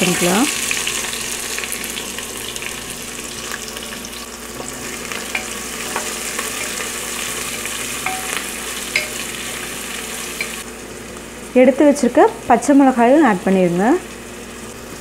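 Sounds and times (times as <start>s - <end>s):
onion sizzling in hot oil: 0.0s - 15.0s.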